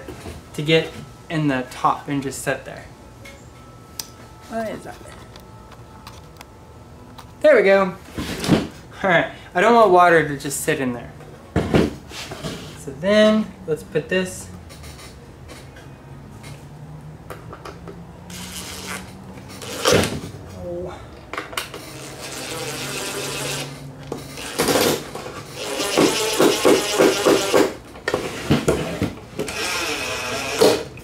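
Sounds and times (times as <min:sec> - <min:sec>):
cordless driver motor whine: 0:25.5 - 0:27.7, 0:29.5 - 0:30.9.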